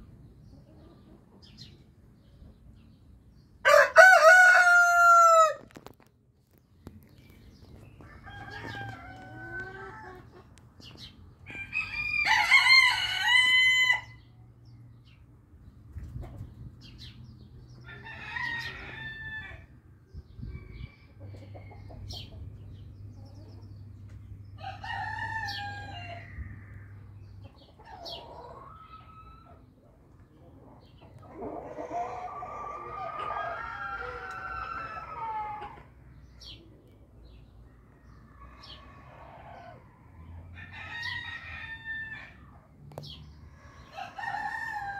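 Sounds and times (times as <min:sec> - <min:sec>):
roosters crowing: 0:03.6 - 0:06.0, 0:08.0 - 0:10.5, 0:11.4 - 0:14.3, 0:17.8 - 0:19.8, 0:24.4 - 0:29.7, 0:31.2 - 0:36.6, 0:38.0 - 0:44.9.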